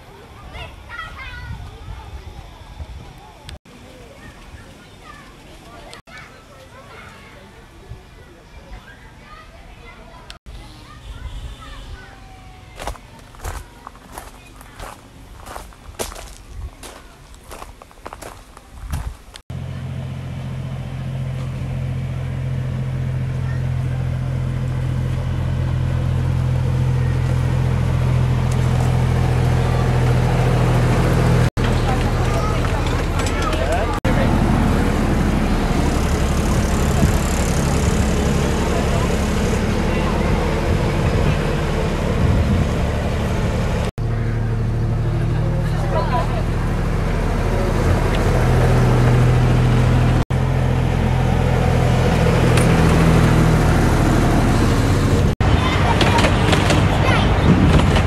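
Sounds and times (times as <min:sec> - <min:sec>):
miniature locomotive engine drone: 0:19.5 - 0:58.0.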